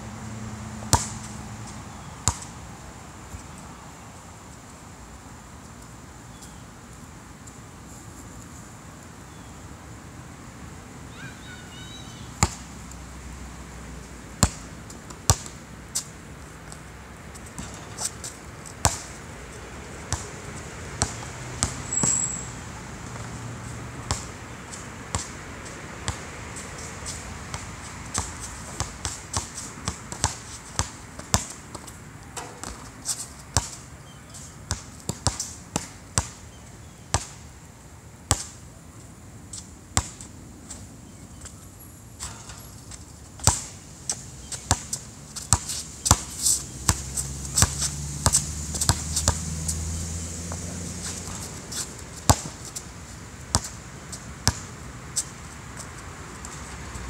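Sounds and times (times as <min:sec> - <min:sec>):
basketball bouncing on hard court: 0:00.9 - 0:01.2, 0:15.3 - 0:15.5, 0:21.0 - 0:22.1, 0:24.1 - 0:24.3, 0:27.5 - 0:31.8, 0:32.4 - 0:32.9, 0:34.7 - 0:36.4, 0:43.4 - 0:43.7, 0:44.6 - 0:46.3, 0:46.9 - 0:49.4, 0:52.3 - 0:52.8, 0:53.5 - 0:53.8, 0:54.4 - 0:54.7.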